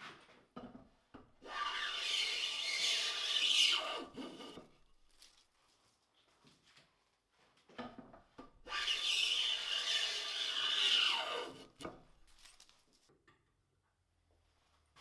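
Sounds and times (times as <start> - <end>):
hand plane shaving wood: 1.5 - 4.6, 8.7 - 11.8
scrape: 1.6 - 4.6.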